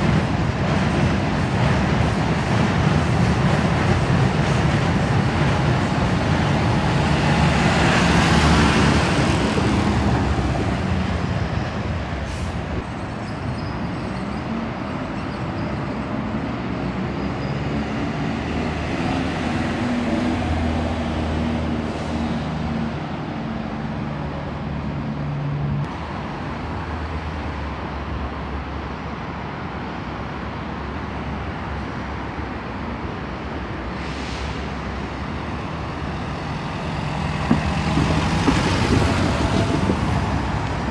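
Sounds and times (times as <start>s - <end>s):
buses driving past: 0.0s - 40.9s
air brake hiss: 12.2s - 12.7s, 33.9s - 34.8s.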